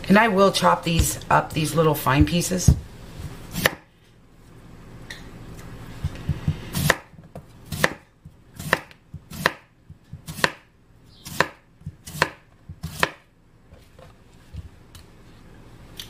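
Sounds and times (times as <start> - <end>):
knife slicing potato: 3.2 - 3.8, 6.0 - 8.0, 8.6 - 10.6, 11.2 - 13.2.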